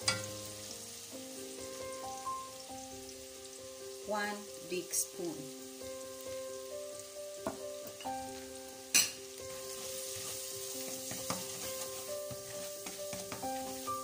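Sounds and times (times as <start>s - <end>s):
onion sizzling in hot oil: 0.0s - 14.0s
spatula stirring in pan: 9.4s - 14.0s.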